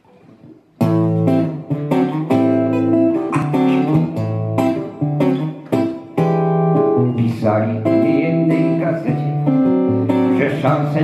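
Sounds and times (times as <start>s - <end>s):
acoustic guitar strumming chords: 0.0s - 11.0s.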